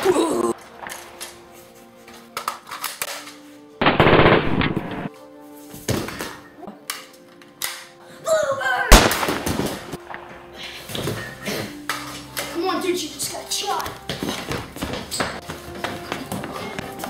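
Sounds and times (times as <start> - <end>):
faint background music: 0.0 - 17.0
machine-gun fire: 3.8 - 5.1, 8.9 - 9.9
sharp gunshots: 3.8 - 5.1, 8.9 - 10.0.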